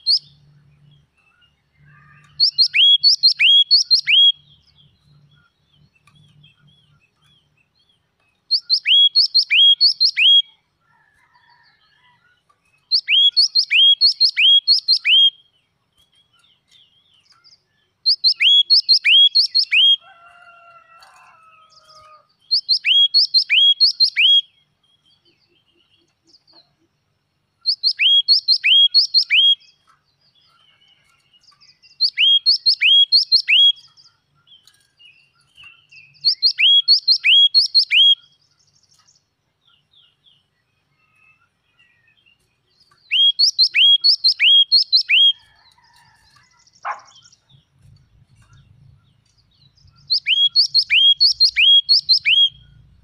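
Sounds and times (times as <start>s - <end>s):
bird singing ringing notes: 0.0s - 10.6s, 12.9s - 15.6s, 16.2s - 20.2s, 22.5s - 25.0s, 27.6s - 39.0s, 42.8s - 45.6s, 46.8s - 53.0s.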